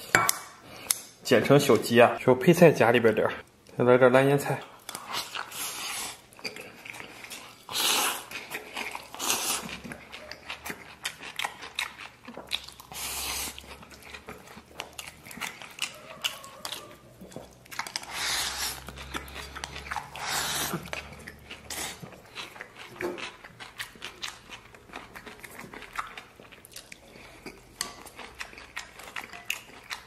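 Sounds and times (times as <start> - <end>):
chewing: 4.6 - 30.0
man slurping food: 18.0 - 21.0.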